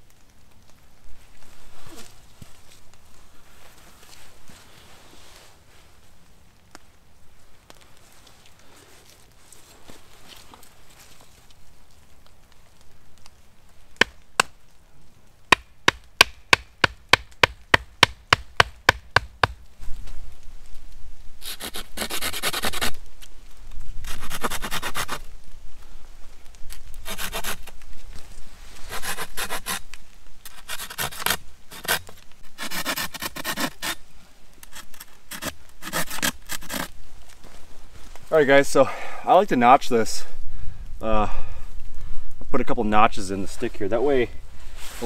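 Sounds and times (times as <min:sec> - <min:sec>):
rasping strokes on wood: 0:27.1 - 0:27.6, 0:28.9 - 0:29.8, 0:30.5 - 0:32.0, 0:32.6 - 0:34.0, 0:34.7 - 0:36.9.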